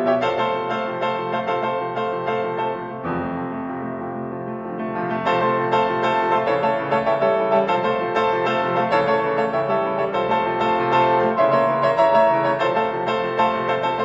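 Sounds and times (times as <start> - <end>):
piano playing: 0.0 - 14.0.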